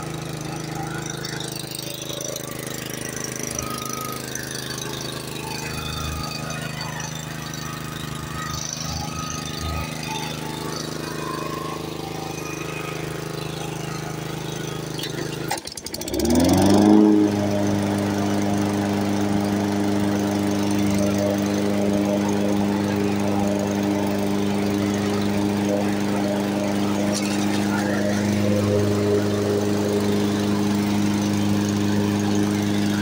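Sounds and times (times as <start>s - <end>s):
lawn mower engine running: 0.0s - 33.0s.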